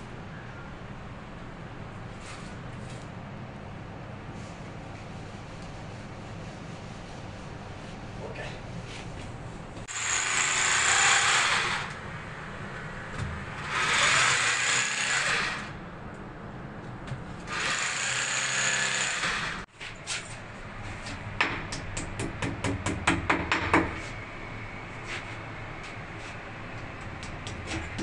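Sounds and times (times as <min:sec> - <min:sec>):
electric power drill running: 0:09.9 - 0:12.0, 0:13.6 - 0:15.8, 0:17.5 - 0:19.7.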